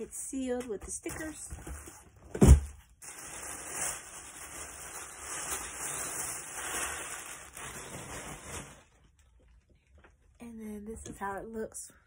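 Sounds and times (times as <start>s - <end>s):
packaging wrap crinkling: 2.7s - 10.3s.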